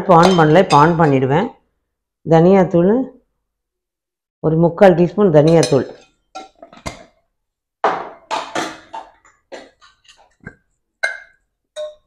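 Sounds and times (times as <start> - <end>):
spoon and container taps and scrapes: 5.5 - 7.2, 7.9 - 12.0.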